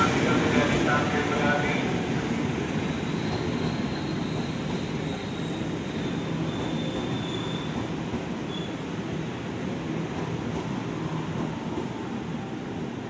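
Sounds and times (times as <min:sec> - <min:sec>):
train wheels rumbling on rails: 0:00.0 - 0:12.2
faint high squeal: 0:02.9 - 0:07.8.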